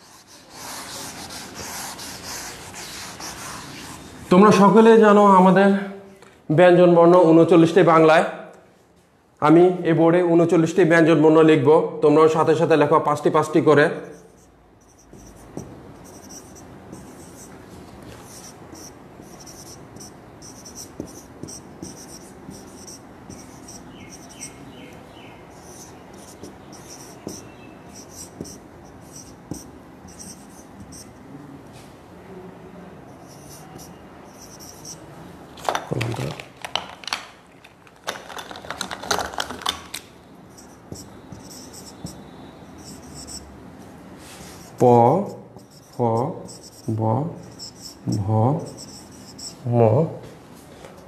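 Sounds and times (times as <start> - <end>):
writing scratching on a board: 0.0 - 4.1, 14.0 - 24.6, 25.5 - 31.1, 33.1 - 35.0, 40.5 - 43.5, 44.5 - 49.6.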